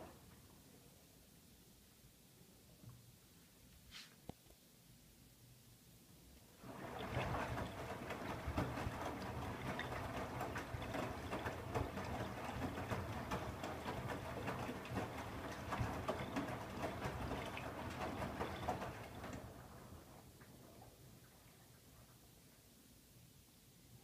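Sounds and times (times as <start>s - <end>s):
laundry sloshing in washing machine: 6.6s - 22.1s.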